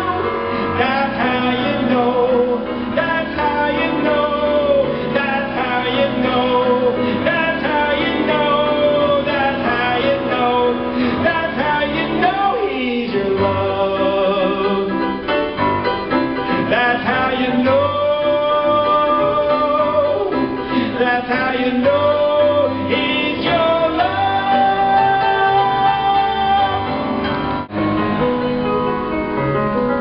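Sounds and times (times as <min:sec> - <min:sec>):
man singing: 0:00.0 - 0:15.4, 0:16.4 - 0:27.4
piano accompaniment: 0:00.0 - 0:30.0.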